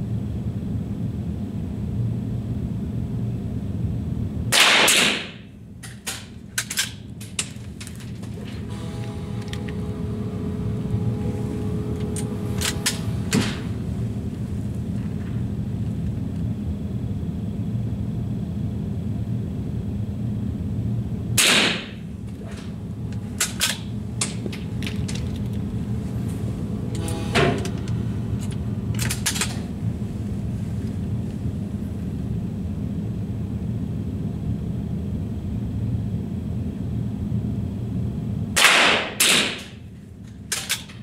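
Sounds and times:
steady low hum: 0.0 - 41.0
rifle shot: 4.6 - 5.4, 21.4 - 22.0, 38.6 - 39.7.

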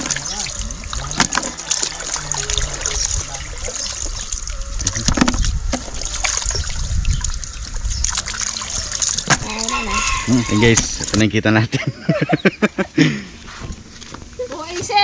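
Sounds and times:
water splashing into a basin: 0.0 - 11.3.

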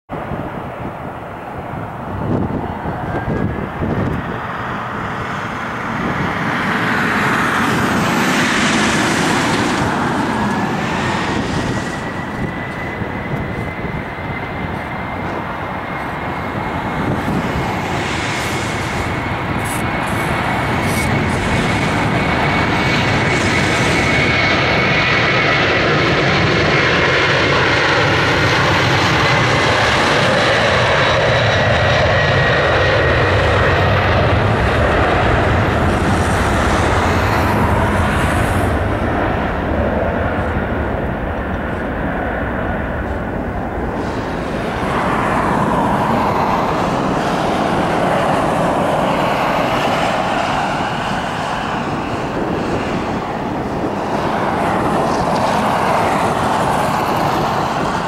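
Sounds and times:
jet engine whine: 0.1 - 58.0
jet rumble: 0.1 - 58.0.

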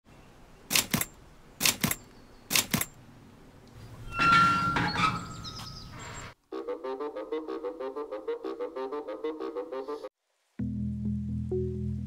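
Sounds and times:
iron gate creaking open: 3.8 - 6.4.

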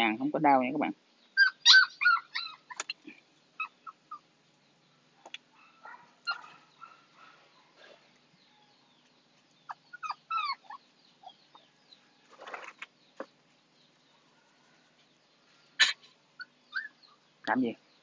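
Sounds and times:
puppies whimpering: 1.4 - 2.9, 9.7 - 11.5, 15.8 - 17.2.

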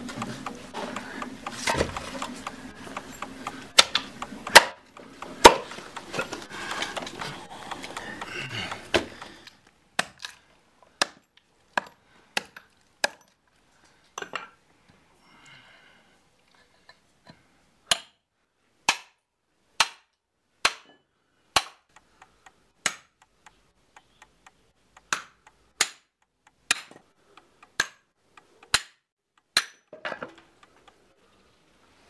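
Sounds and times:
hatchet chopping wood: 0.0 - 9.4, 10.0 - 10.4, 11.0 - 13.3, 17.9 - 18.2, 18.9 - 19.2, 19.8 - 20.9, 21.5 - 23.2, 25.0 - 30.8.

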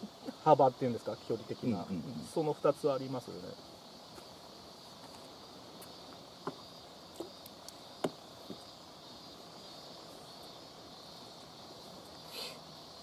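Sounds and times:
insects buzzing: 0.0 - 13.0
light knocks: 8.0 - 8.6.

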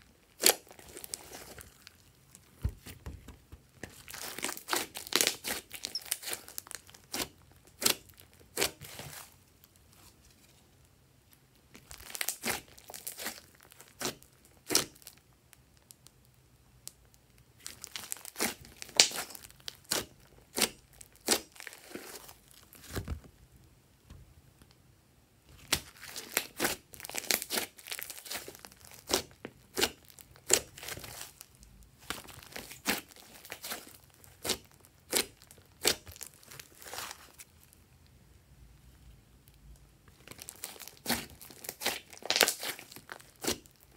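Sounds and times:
hands squishing slime: 0.2 - 10.0, 11.7 - 15.1, 17.6 - 23.1, 25.5 - 37.6, 40.2 - 43.9.

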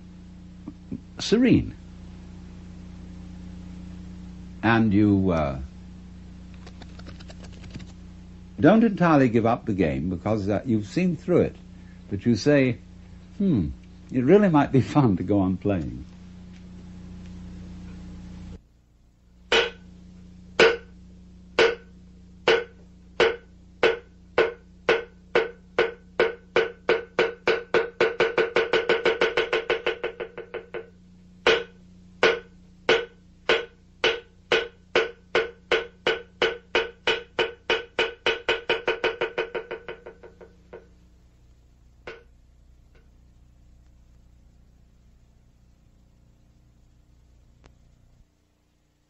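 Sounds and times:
wooden percussion block strikes: 19.5 - 19.8, 20.6 - 20.9, 21.6 - 40.9, 42.0 - 42.3.

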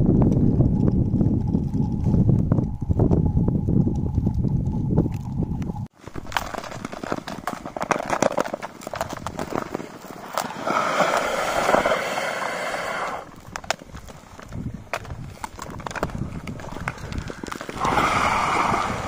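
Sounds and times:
ice skates scraping on ice: 6.1 - 19.0
pole tips clicking on ice: 6.2 - 12.3, 13.0 - 18.2.

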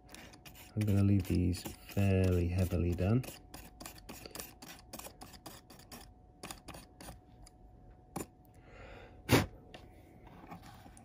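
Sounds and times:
pen scrubbing plastic: 0.0 - 7.2.

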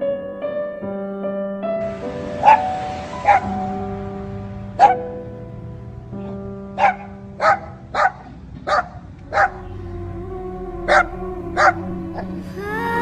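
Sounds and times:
music of sustained tones: 1.6 - 8.0, 9.2 - 13.0
dog barking: 6.8 - 9.6.

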